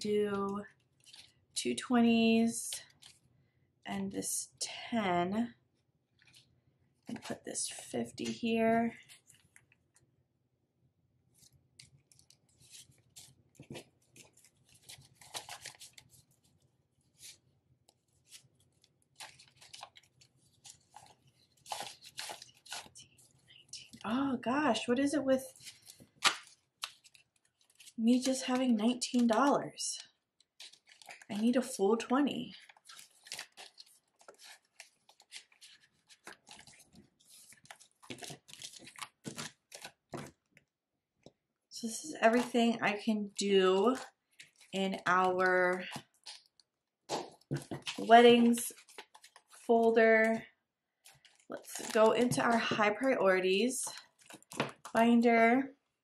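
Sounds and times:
banknotes flicking and rustling: 11.4 - 17.4, 18.0 - 23.6, 30.4 - 31.7, 32.5 - 40.4, 47.2 - 49.6.

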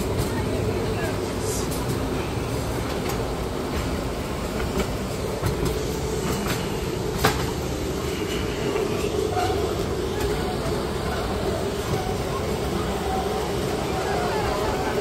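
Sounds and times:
ride train wheels and motor rumble: 0.0 - 15.0.

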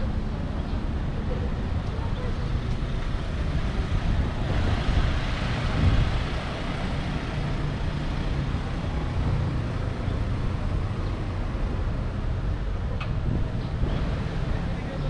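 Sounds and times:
road traffic rumble: 0.0 - 15.0.

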